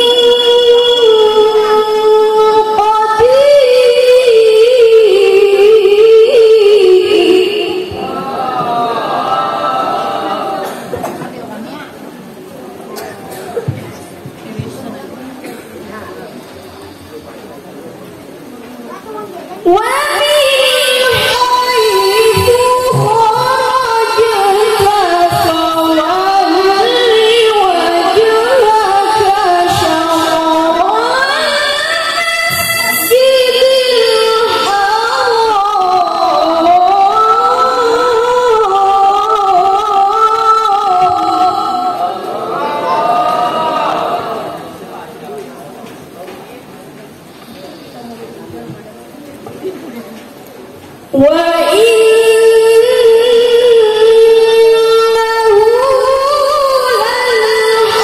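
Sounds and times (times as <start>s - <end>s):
woman chanting: 0.0s - 9.0s, 19.6s - 44.8s, 51.2s - 58.0s
woman singing through a pa: 0.0s - 9.4s, 19.6s - 44.8s, 51.1s - 58.0s.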